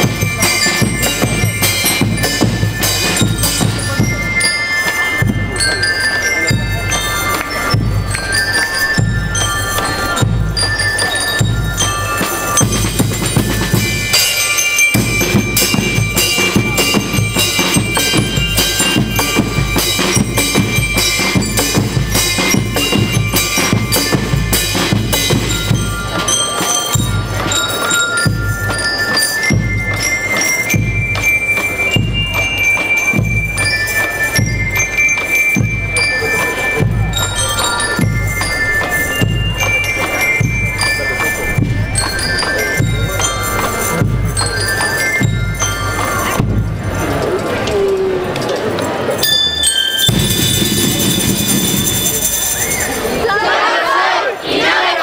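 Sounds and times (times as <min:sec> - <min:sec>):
bell lyres ringing a melody: 0:00.0 - 0:54.2
snare drums: 0:50.0 - 0:53.0.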